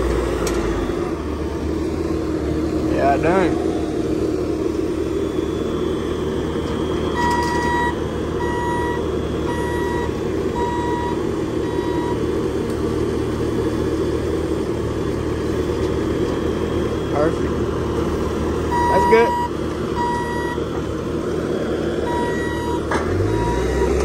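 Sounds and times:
diesel engine running: 0.0s - 24.0s
reversing alarm beeping: 5.0s - 12.3s, 18.7s - 20.6s, 22.0s - 24.0s.

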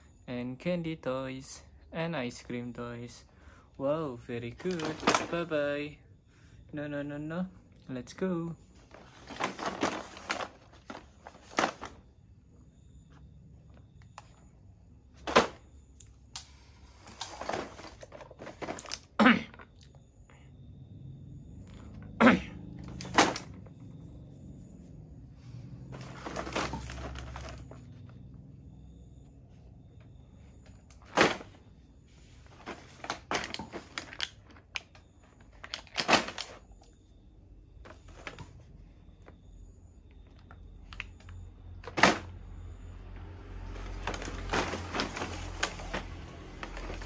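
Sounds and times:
plastic packaging crinkling: 4.6s - 5.5s, 8.9s - 12.0s, 32.5s - 36.6s, 43.7s - 47.0s.

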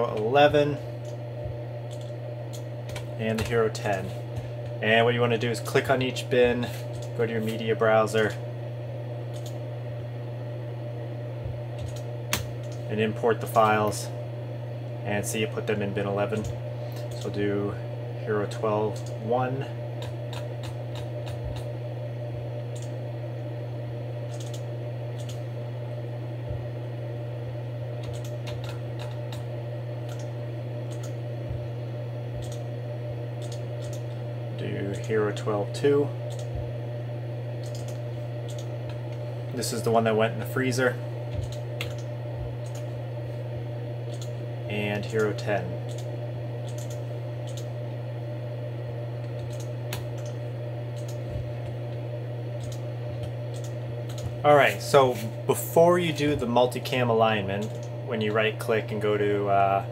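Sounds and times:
steady low hum: 0.0s - 59.9s
computer mouse clicks: 9.3s - 9.6s, 11.8s - 12.8s, 24.3s - 24.6s, 25.2s - 25.4s, 28.0s - 29.4s, 30.1s - 30.3s, 30.9s - 31.2s, 32.4s - 32.6s, 33.4s - 34.1s, 36.3s - 36.5s, 37.6s - 39.0s, 41.3s - 42.9s, 44.1s - 44.3s, 45.9s - 47.7s, 49.2s - 50.4s, 51.0s - 51.2s, 52.6s - 54.3s.

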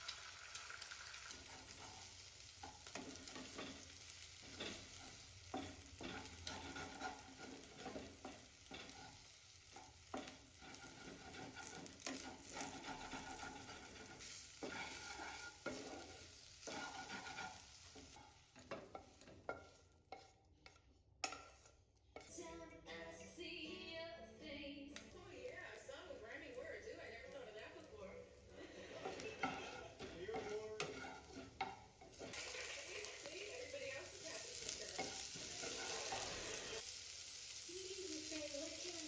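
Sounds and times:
food sizzling in a frying pan: 0.0s - 22.4s, 24.9s - 39.0s
wooden spatula scraping a pan: 1.1s - 22.3s, 25.2s - 36.9s.

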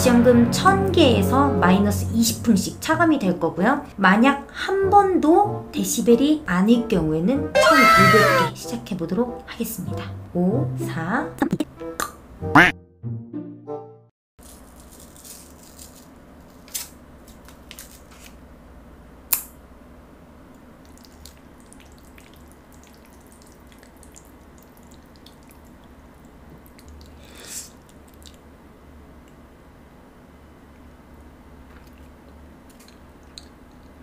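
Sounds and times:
wet mouth sounds: 26.6s - 28.5s, 31.7s - 34.0s.

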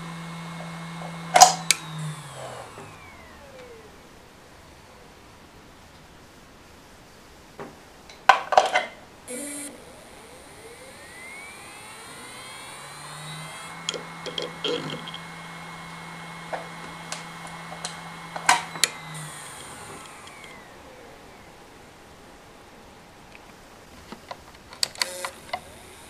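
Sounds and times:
hard drive whine and hum: 0.0s - 26.0s
loud clicks: 0.6s - 4.0s, 9.3s - 21.4s
hard drive head-seek ticks: 9.3s - 21.5s.

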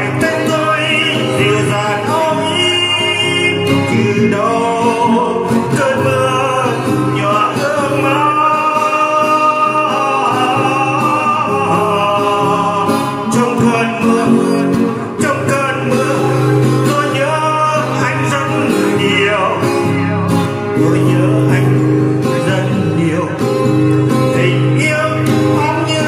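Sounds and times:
acoustic guitar: 0.0s - 26.0s
person singing a slow ballad: 0.0s - 26.0s.

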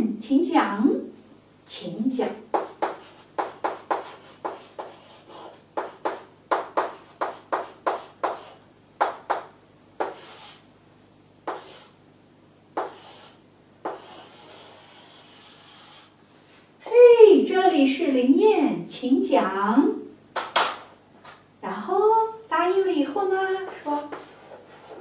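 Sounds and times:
chalk tapping on chalkboard: 2.5s - 10.6s, 11.4s - 11.9s, 12.8s - 16.1s, 23.7s - 25.0s
chalk scraping on chalkboard: 2.6s - 9.4s, 10.0s - 10.6s, 11.4s - 12.0s, 12.8s - 16.4s, 23.7s - 25.0s.

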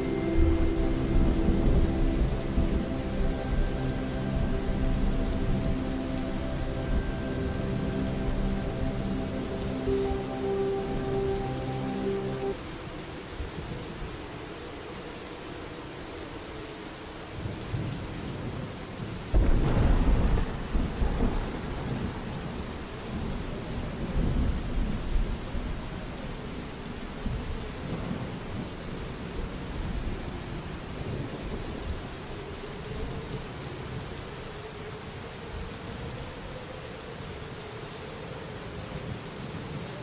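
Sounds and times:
steady rain falling: 0.0s - 40.0s
thunder clap and rumble: 19.4s - 23.4s.

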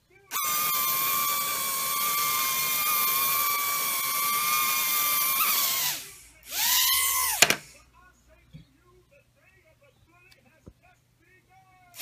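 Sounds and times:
quadcopter motors whining: 0.3s - 7.6s.

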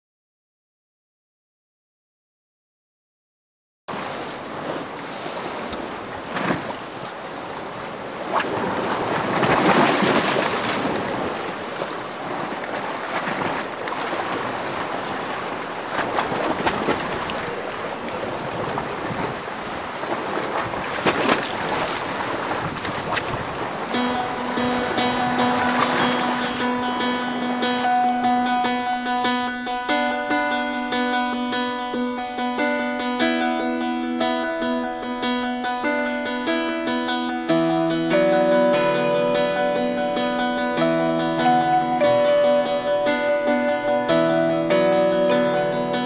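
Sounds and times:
waves on rocky shore: 3.9s - 29.4s
wind on microphone: 4.5s - 28.2s.

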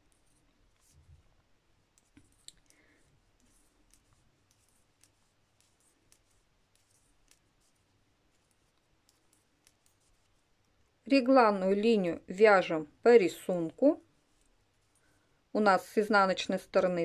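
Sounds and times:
knitting needles clicking: 1.9s - 10.8s.

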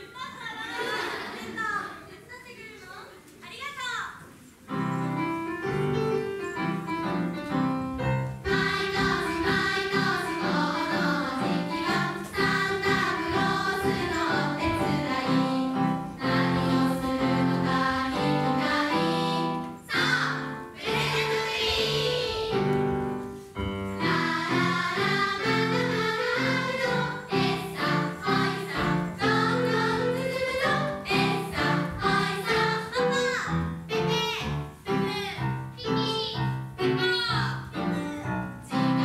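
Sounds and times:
group of voices singing to music: 8.5s - 22.7s, 24.0s - 33.0s.

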